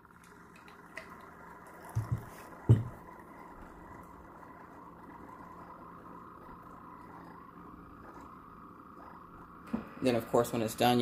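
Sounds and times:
coffee maker humming: 0:00.0 - 0:11.0
cup knocking on counter: 0:02.0 - 0:03.0.

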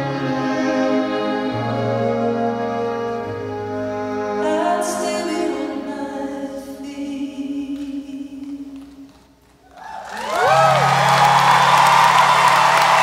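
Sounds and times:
cellos and piano ballad: 0:00.0 - 0:06.4.

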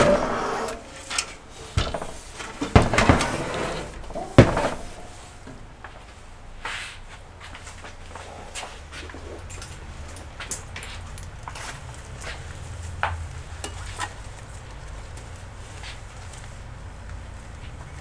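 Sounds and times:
computer case knocking and scraping: 0:00.0 - 0:05.8.

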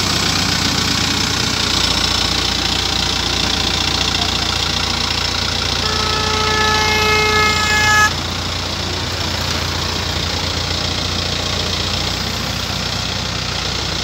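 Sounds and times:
diesel engine running: 0:00.0 - 0:14.0
horn: 0:05.8 - 0:08.2.

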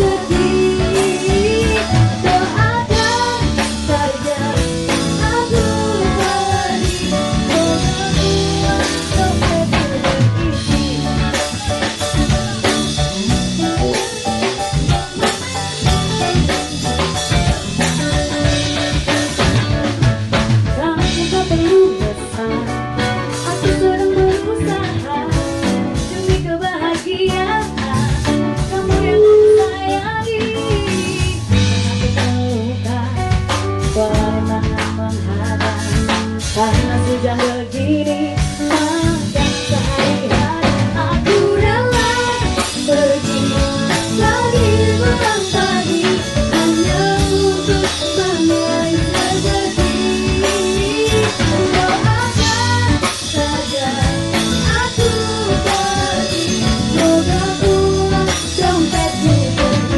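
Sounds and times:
live band pop music: 0:00.0 - 0:59.9.

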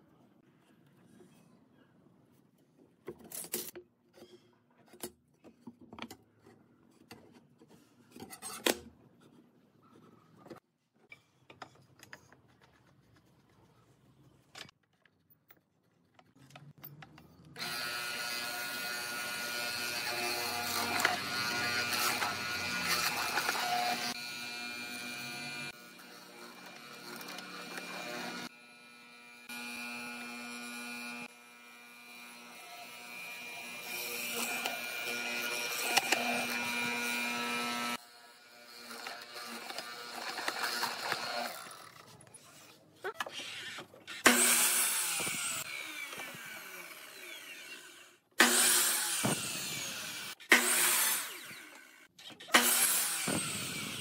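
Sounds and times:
mortiser motor buzzing hum: 0:17.6 - 0:42.0.

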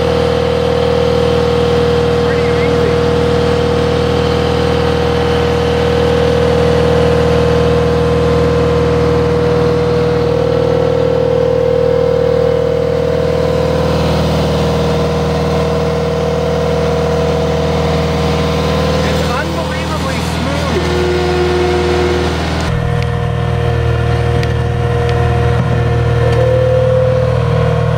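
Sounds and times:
diesel engine running: 0:00.0 - 0:27.9
high hydraulic whine: 0:01.7 - 0:06.3, 0:12.2 - 0:27.9.

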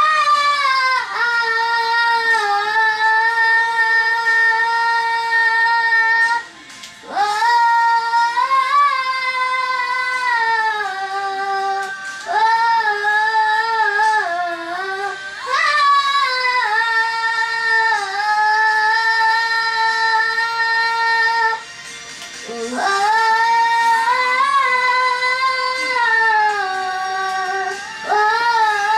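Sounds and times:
girl singing high held notes: 0:22.4 - 0:28.9.

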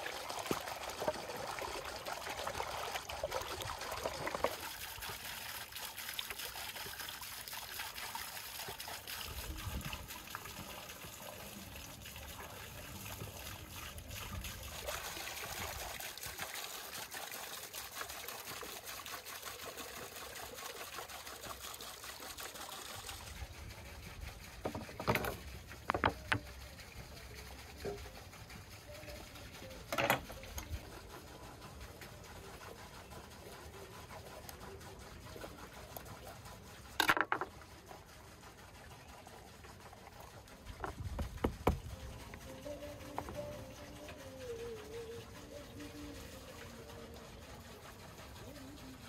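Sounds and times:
water splashing into stone basin: 0:24.6 - 0:26.6, 0:40.5 - 0:43.5.

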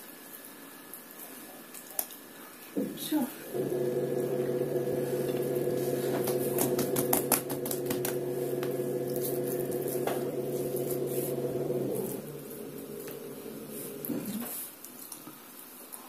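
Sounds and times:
low machine hum: 0:03.3 - 0:14.5
hands working dough clicks and taps: 0:06.0 - 0:08.8.

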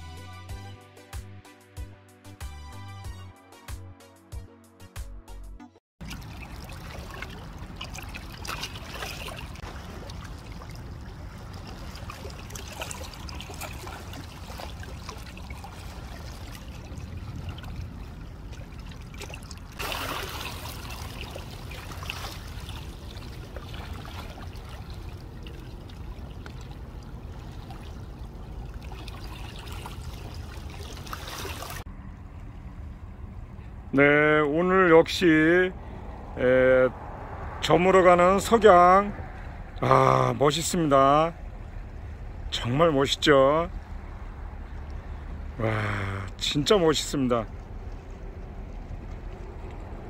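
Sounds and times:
steady low rumble: 0:06.0 - 0:31.0, 0:31.7 - 0:50.0
small waves lapping on stones: 0:06.0 - 0:31.9.

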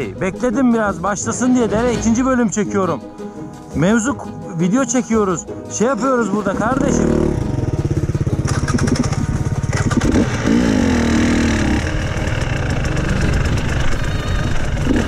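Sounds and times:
dirt bike engine revving: 0:06.5 - 0:15.0.

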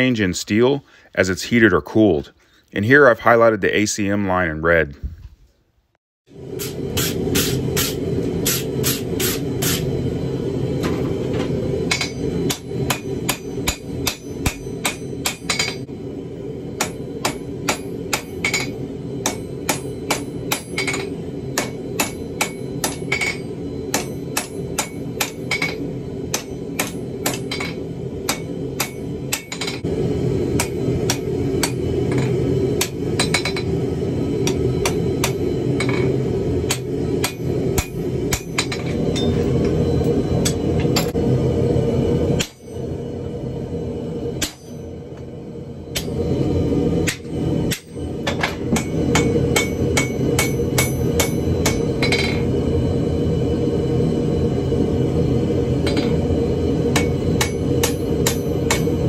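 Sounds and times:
steady low rumble: 0:06.3 - 0:59.0
hammer striking steel on anvil: 0:11.9 - 0:15.9, 0:16.8 - 0:29.8, 0:30.6 - 0:33.7, 0:34.4 - 0:39.4, 0:42.4 - 0:42.8, 0:44.4 - 0:44.9, 0:45.9 - 0:46.2, 0:47.0 - 0:52.4, 0:56.9 - 0:59.0.

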